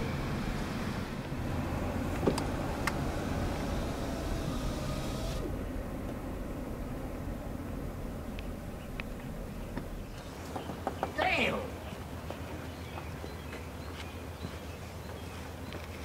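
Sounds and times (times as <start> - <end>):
car interior rumble: 0.0 - 11.9.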